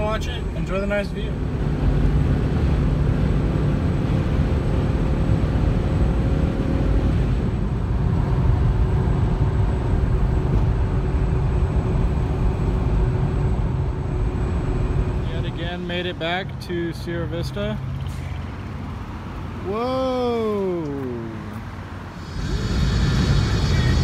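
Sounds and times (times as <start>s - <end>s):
tyres and engine rumble in car: 0.0s - 24.0s.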